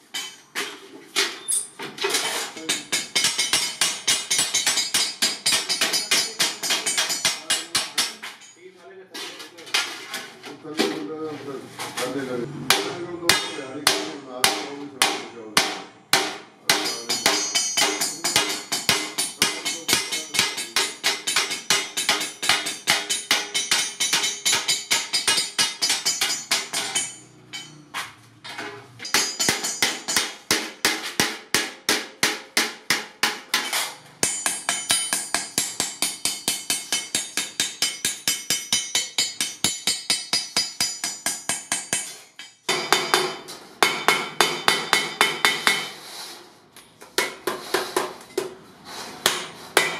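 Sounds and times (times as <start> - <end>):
hammer beating sheet metal: 0.0 - 8.6, 12.7 - 46.1, 47.0 - 49.9.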